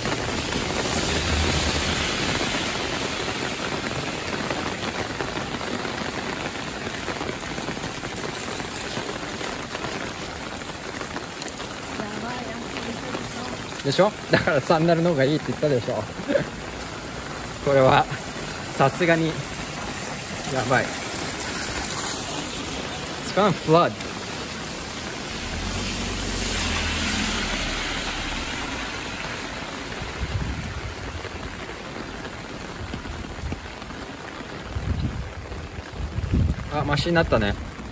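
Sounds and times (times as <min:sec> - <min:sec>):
heavy rain on street: 0:00.0 - 0:37.9
tyres hissing through water: 0:12.0 - 0:30.1
car engine rumble passing: 0:24.7 - 0:29.8.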